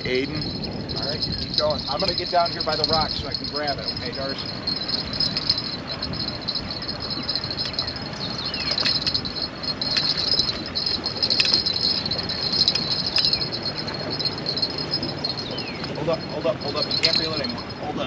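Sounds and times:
insects chirring: 0.0s - 17.9s
low steady rumble: 0.0s - 18.0s.

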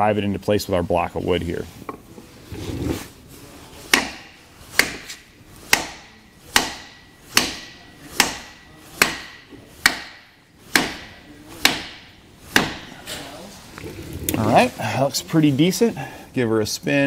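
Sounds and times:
hammer striking wood block: 3.9s - 13.0s.

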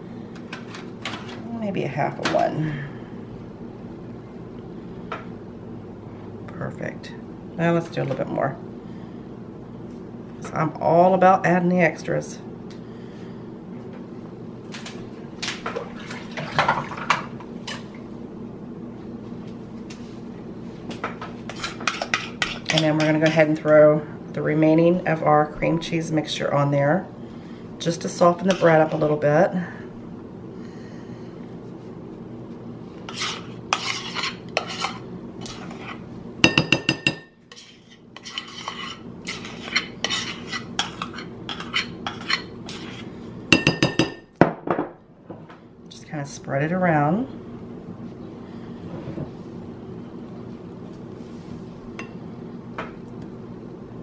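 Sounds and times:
steady low hum: 0.0s - 54.0s
metal spoon scraping bowl: 33.1s - 36.0s, 37.0s - 43.1s.

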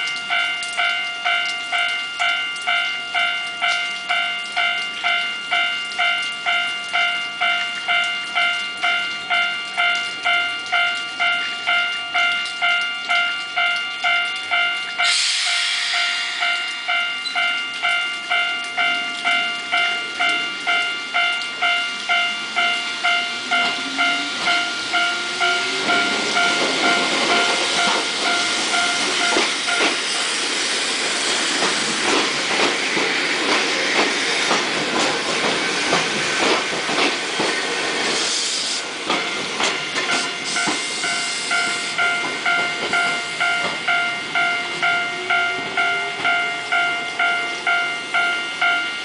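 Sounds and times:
electric train passing: 0.0s - 49.0s
level crossing bell ringing: 16.0s - 30.0s, 39.2s - 49.0s.

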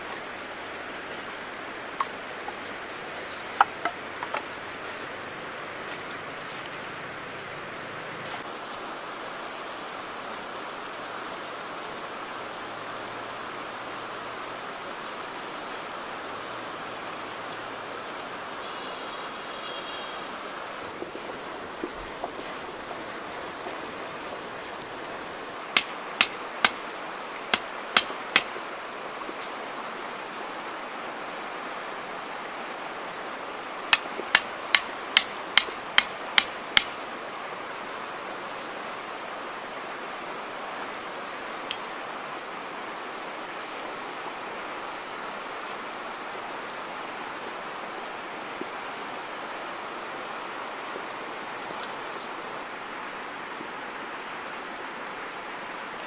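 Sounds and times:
river flowing: 0.0s - 56.0s
machete chopping wood: 25.8s - 26.8s, 27.5s - 28.6s, 33.9s - 37.0s.

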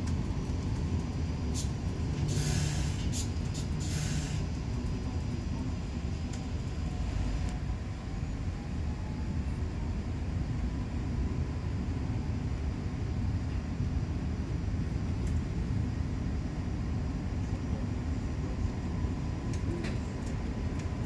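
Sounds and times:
train rumbling: 0.0s - 21.0s
short hissing bursts: 2.3s - 4.4s.

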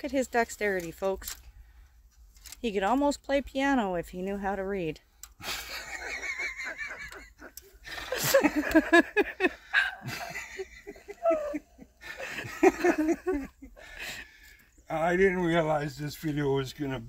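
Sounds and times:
people laughing: 5.4s - 14.2s.

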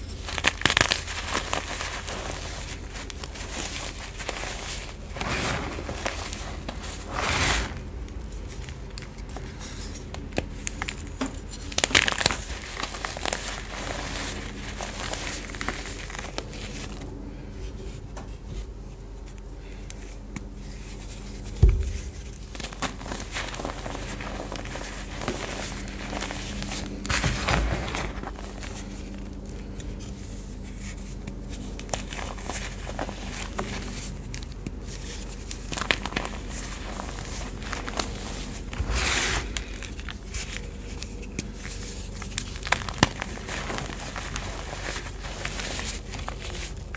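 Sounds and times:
chalk crunching and crumbling: 0.0s - 46.9s
dull thump: 21.6s - 22.4s.

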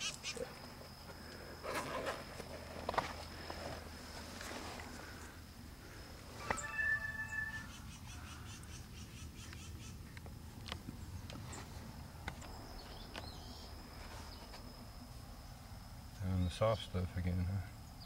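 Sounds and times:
high insect drone: 0.0s - 18.0s
pulsing high chirps: 6.4s - 8.2s
bird-like call: 6.4s - 10.0s.

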